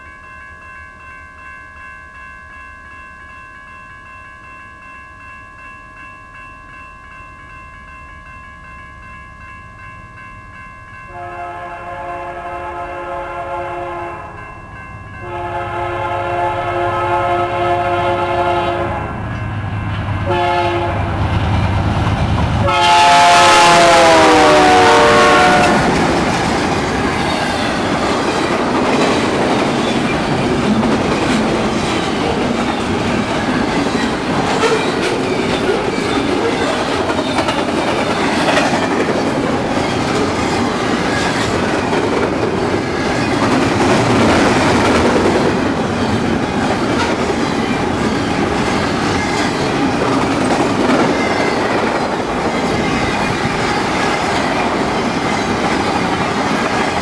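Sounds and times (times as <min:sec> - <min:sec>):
crossing bell ringing: 0:00.0 - 0:21.8, 0:22.6 - 0:57.0
train rumble and wheel clatter: 0:06.7 - 0:57.0
locomotive horn blasts: 0:11.1 - 0:14.4, 0:15.2 - 0:19.2, 0:20.2 - 0:21.1, 0:22.6 - 0:25.9.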